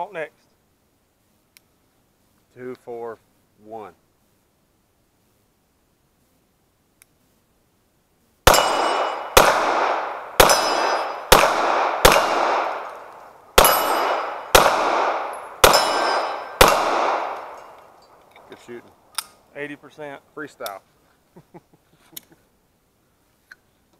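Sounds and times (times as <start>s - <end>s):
pistol shots echoing: 8.5s - 18.0s.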